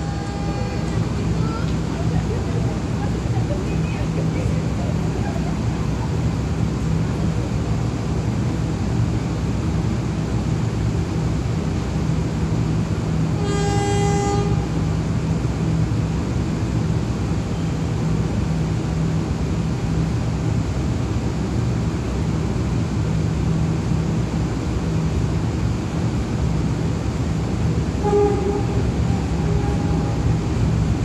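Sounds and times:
train horn blast: 0.0 - 1.0, 13.4 - 14.9, 27.9 - 31.0
diesel train engine droning: 0.0 - 31.0.

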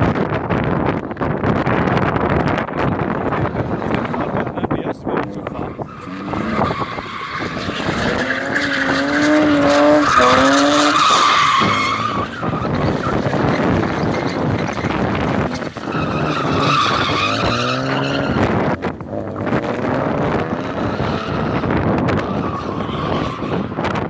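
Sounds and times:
car engine at high revs: 0.0 - 24.0
tyres squealing: 5.2 - 18.7.

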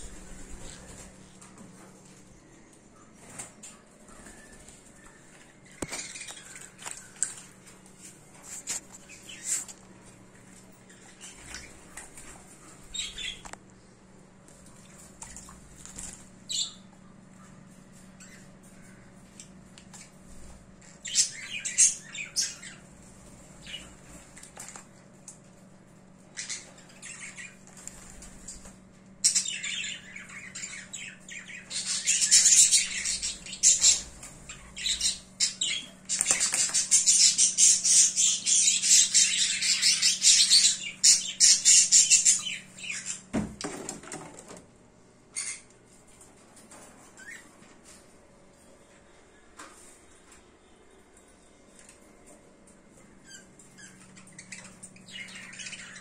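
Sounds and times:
bird flapping wet wings: 14.7 - 16.3.

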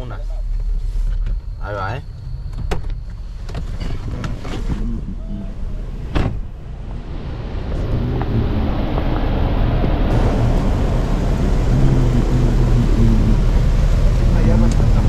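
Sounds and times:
car engine idling: 4.8 - 15.0.

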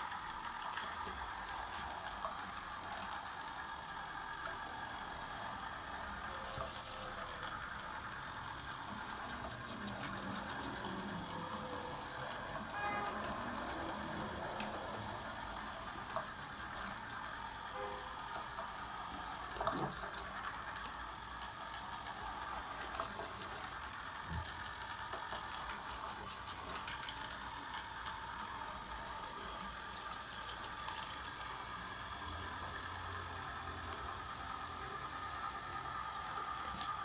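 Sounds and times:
robot vacuum motor whir: 19.0 - 37.0.

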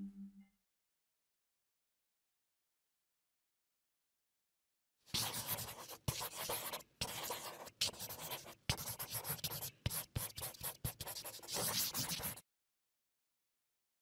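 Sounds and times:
pen scratching on paper: 5.1 - 12.4.

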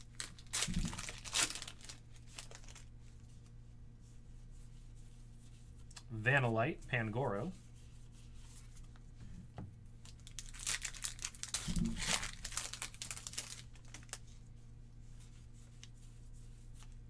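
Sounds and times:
foil wrapper crinkling and tearing: 0.0 - 2.9, 10.0 - 14.2.

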